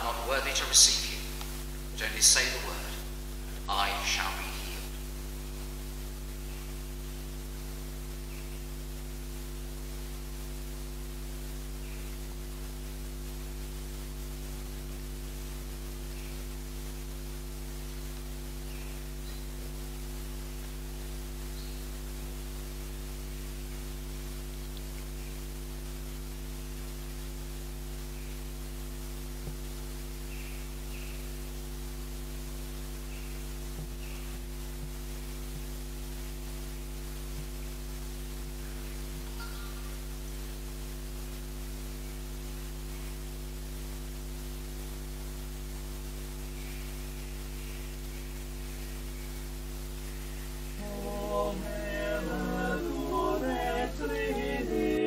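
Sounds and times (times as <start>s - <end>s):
background hiss: 0.0s - 55.0s
electrical mains hum: 0.0s - 55.0s.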